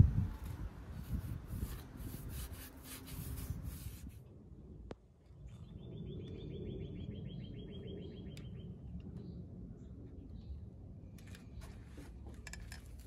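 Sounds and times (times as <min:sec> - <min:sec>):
hand scraping fibreglass hull: 0:00.2 - 0:04.2.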